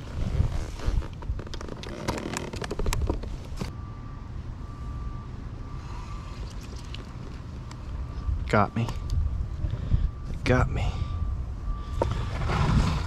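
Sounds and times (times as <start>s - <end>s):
wind rumble on microphone: 0.0s - 3.7s, 8.0s - 13.0s
fishing gear clicking and knocking: 1.3s - 3.3s
faint thin steady tone: 3.7s - 12.3s.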